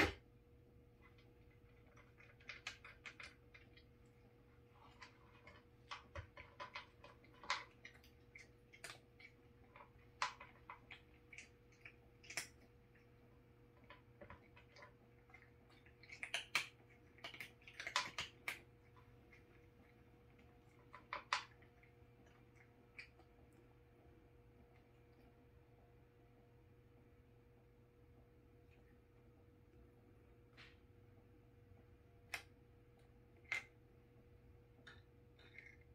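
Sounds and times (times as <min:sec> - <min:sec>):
cat crunching dry kibble: 0:01.0 - 0:25.4, 0:34.7 - 0:35.9.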